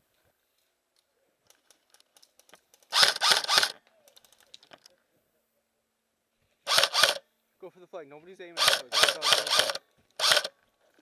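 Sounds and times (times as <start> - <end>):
faint clicks: 0.9 - 3.0
airsoft gun firing bursts: 2.9 - 3.8, 6.7 - 7.2, 8.6 - 10.5.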